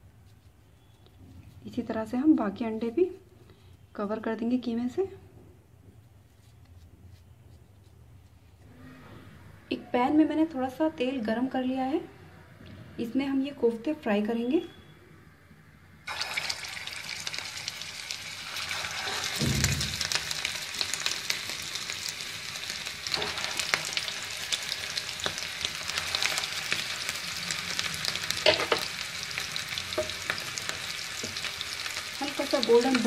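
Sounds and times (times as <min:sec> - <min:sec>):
hot oil sizzling: 0:16.1 - 0:33.0
dull thump: 0:19.4 - 0:20.0.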